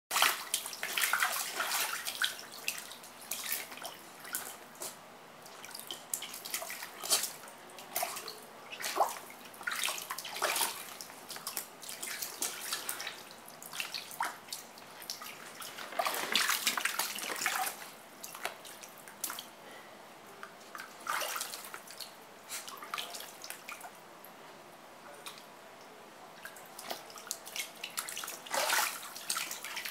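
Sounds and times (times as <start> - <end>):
dog splashing in water: 0.1 - 19.5, 20.8 - 22.0, 26.8 - 29.9.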